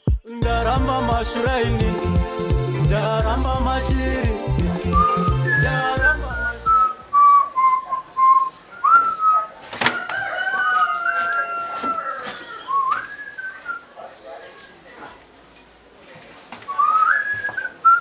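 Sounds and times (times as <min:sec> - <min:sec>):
pop background music: 0:00.0 - 0:06.9
person whistling a tune: 0:04.8 - 0:09.4.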